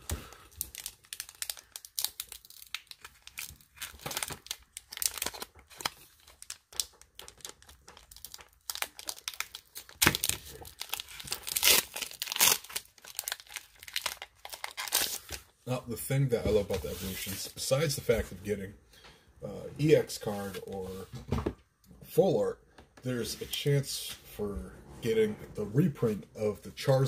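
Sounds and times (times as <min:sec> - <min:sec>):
foil wrapper crinkling: 0:00.1 - 0:15.5
foil wrapper tearing: 0:00.3 - 0:15.5.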